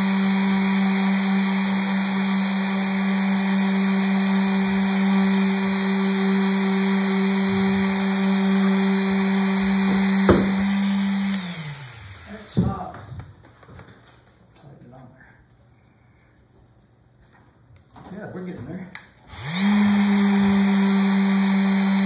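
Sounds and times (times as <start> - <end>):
orbital sander on wood: 0.0 - 12.9, 19.3 - 22.0.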